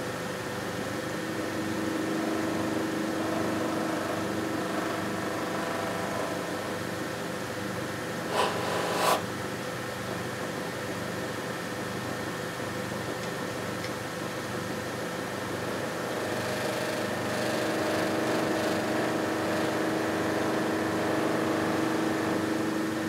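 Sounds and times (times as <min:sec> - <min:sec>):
bench grinder running: 0:08.2 - 0:09.2.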